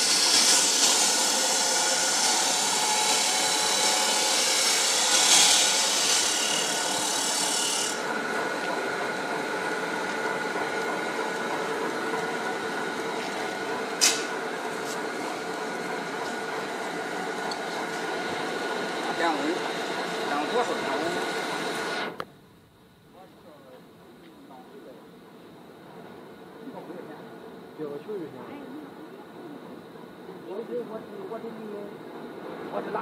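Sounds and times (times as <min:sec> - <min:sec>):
machine rasping hiss: 0:00.0 - 0:08.2
mechanical hum: 0:00.0 - 0:33.0
sharp click: 0:14.0 - 0:14.3.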